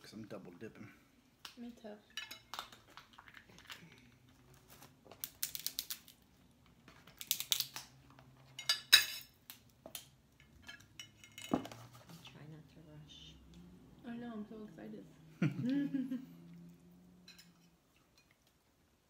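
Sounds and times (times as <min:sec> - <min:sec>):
crab shells snapping: 0:05.2 - 0:06.2, 0:07.1 - 0:08.0.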